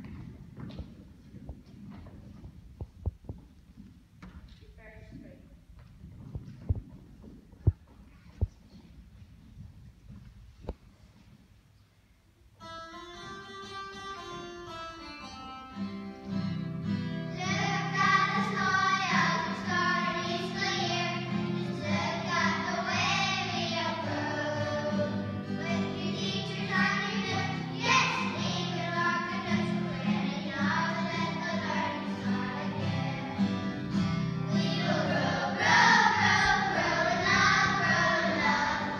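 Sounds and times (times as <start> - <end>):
instrumental accompaniment: 12.6 - 38.9
children singing together: 17.3 - 38.9.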